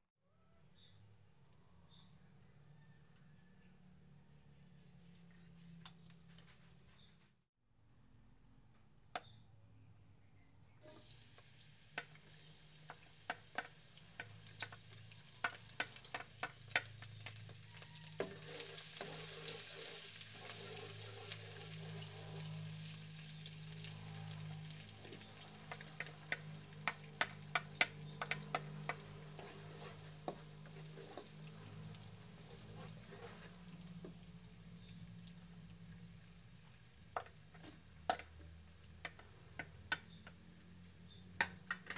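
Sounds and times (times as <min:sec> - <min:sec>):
oil sizzling in a wok: 0:10.8 - 0:41.9
spatula stirring in a wok: 0:11.8 - 0:40.4
crackling pops of oil: 0:11.9 - 0:17.6, 0:24.9 - 0:29.2, 0:37.1 - 0:40.4, 0:41.3 - 0:41.9.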